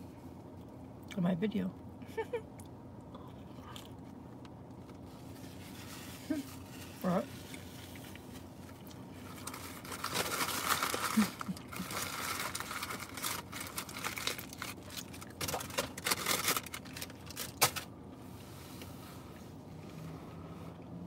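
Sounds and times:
paper packaging crinkling: 9.2s - 17.9s.

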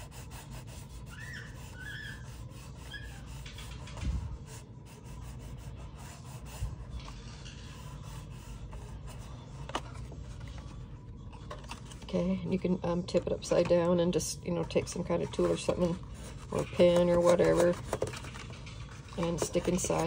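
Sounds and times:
fingertips rubbing paper: 0.0s - 9.8s, 15.1s - 20.0s.

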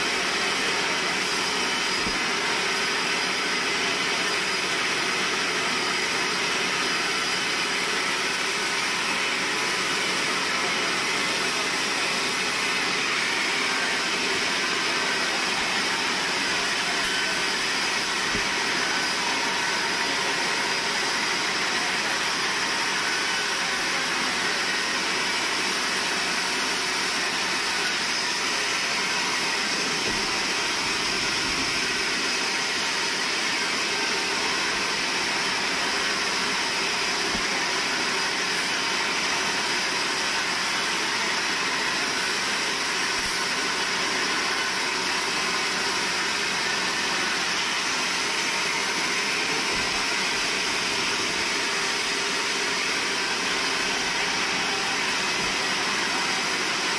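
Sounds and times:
band saw cutting log: 0.0s - 56.9s.

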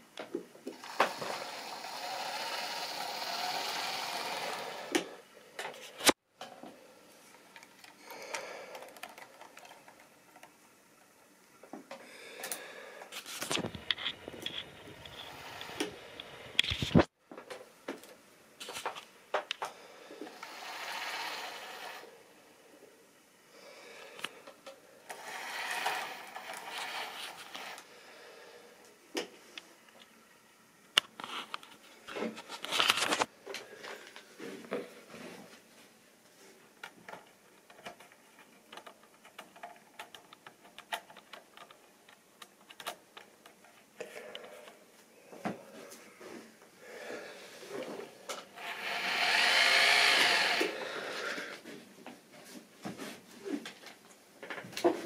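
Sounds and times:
model locomotive motor whirring: 0.7s - 5.2s, 13.2s - 17.0s, 20.2s - 22.1s, 25.0s - 27.9s, 47.8s - 51.4s.

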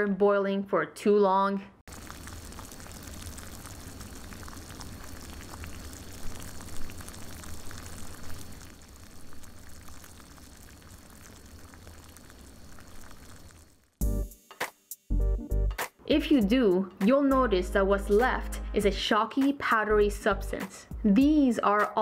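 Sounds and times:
water boiling in saucepan: 1.9s - 14.0s.

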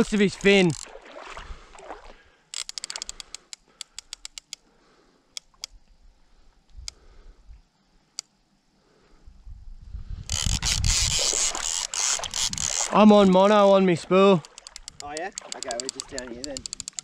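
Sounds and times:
fishing reel clicking: 0.1s - 0.9s, 2.5s - 4.7s, 10.2s - 13.4s, 14.2s - 17.0s.

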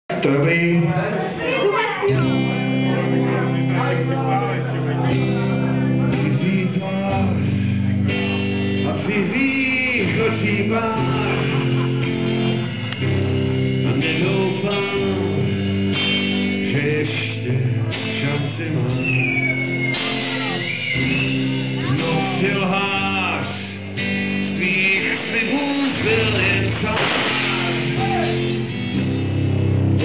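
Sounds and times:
electric guitar chords: 0.1s - 30.0s
drums: 5.1s - 30.0s
person singing: 6.0s - 8.2s, 8.8s - 11.9s, 13.8s - 19.4s, 21.8s - 28.6s.

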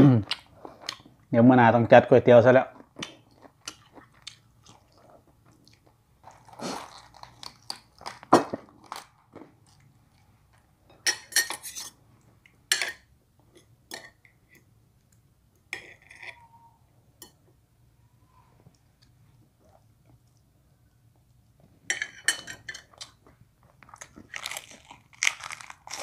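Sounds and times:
chewing and crunching food: 2.7s - 10.3s, 22.8s - 26.0s.

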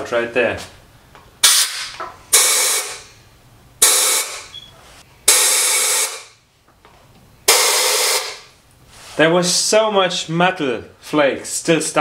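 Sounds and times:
compressed air blasts hissing: 1.4s - 3.2s, 3.8s - 4.6s, 5.2s - 6.4s, 7.5s - 8.5s.

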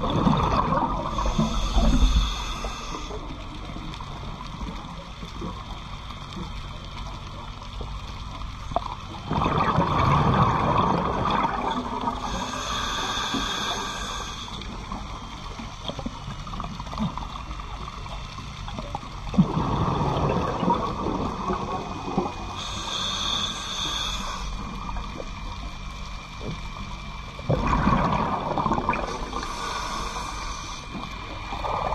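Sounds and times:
underwater noise: 0.0s - 31.9s
regulator inhale hiss: 1.0s - 3.8s, 12.0s - 15.7s, 22.3s - 25.6s, 29.0s - 31.6s
bubbling exhalation underwater: 9.3s - 12.2s, 27.5s - 29.2s.

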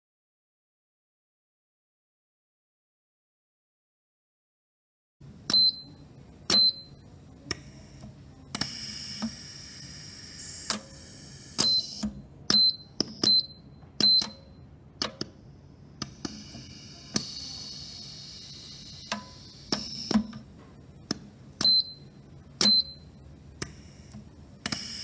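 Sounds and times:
air hiss from cylinders: 7.6s - 12.1s, 16.0s - 20.4s, 23.6s - 25.0s.

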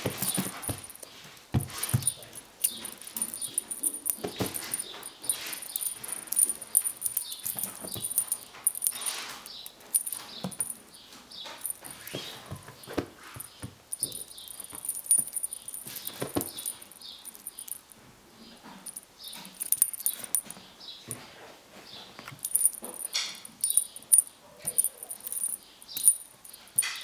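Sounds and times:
feather toy rustling: 0.0s - 9.2s, 12.9s - 17.9s, 22.4s - 26.9s.

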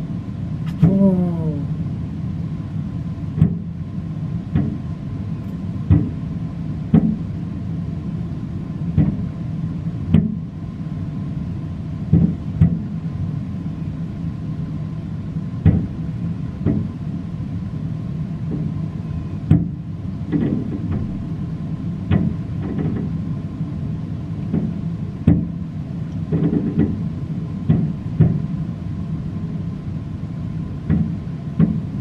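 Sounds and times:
steady low rumble: 0.0s - 32.0s.

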